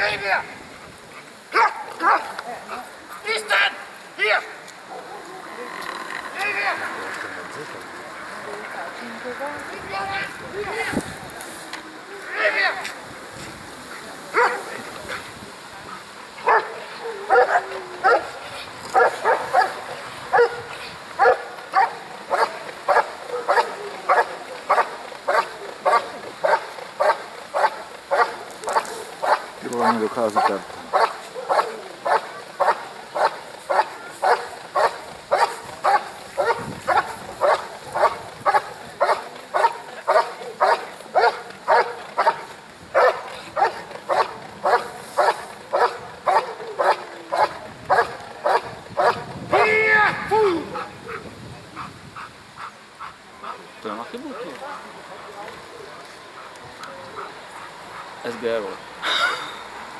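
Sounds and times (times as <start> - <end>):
dog barking: 1.5 - 2.3, 14.4 - 14.7, 16.4 - 18.3, 19.0 - 49.2.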